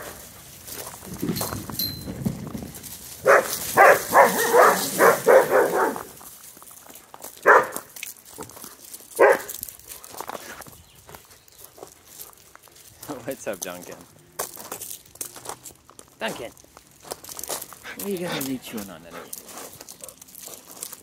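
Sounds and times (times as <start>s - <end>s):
dog barking: 3.2s - 6.1s, 7.4s - 7.9s, 9.2s - 9.6s.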